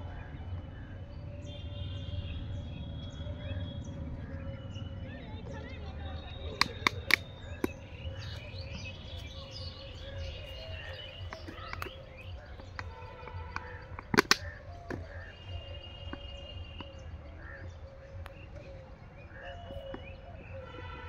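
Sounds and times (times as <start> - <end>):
low outdoor background: 0.0 - 21.0
small birds chirping: 0.0 - 21.0
sharp clicks: 6.5 - 9.6, 10.5 - 15.3.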